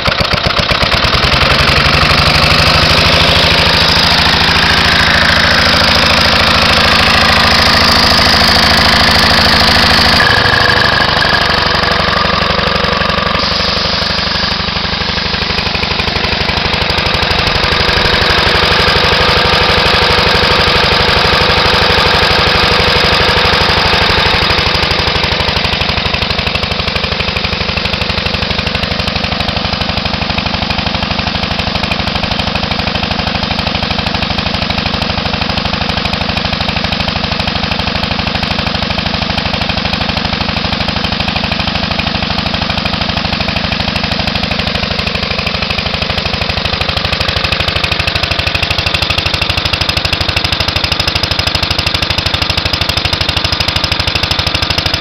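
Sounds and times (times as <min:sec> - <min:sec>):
single-cylinder engine running: 0:00.0 - 0:55.0
air compressor pumping: 0:09.3 - 0:19.5.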